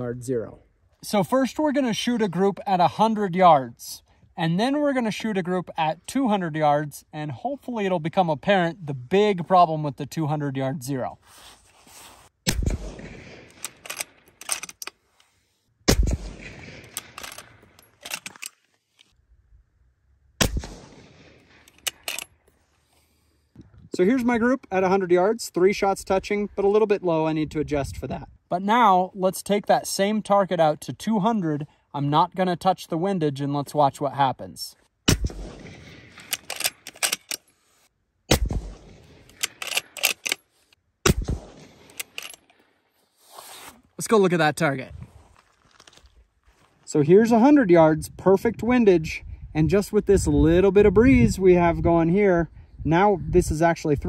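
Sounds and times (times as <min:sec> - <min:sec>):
rifle shots echoing: 0:12.5 - 0:14.3, 0:15.9 - 0:18.2, 0:20.4 - 0:22.1, 0:35.1 - 0:37.3, 0:38.3 - 0:40.2, 0:41.0 - 0:42.2
rifle bolt clicks: 0:13.5 - 0:15.0, 0:16.4 - 0:18.6, 0:20.6 - 0:22.3, 0:36.2 - 0:37.5, 0:39.2 - 0:40.4, 0:41.4 - 0:42.5.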